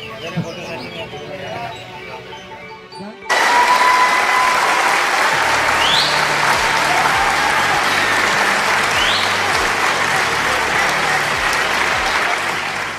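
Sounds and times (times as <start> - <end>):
audience applauding: 3.3 - 12.9.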